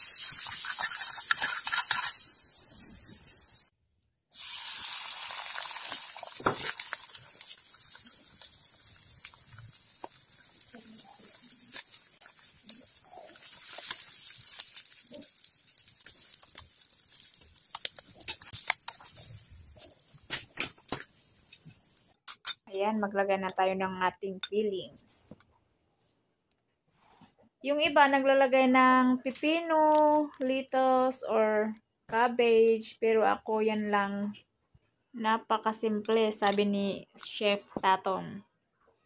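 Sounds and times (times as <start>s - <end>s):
egg sizzling in frying pan: 0.0s - 3.7s, 4.3s - 22.2s.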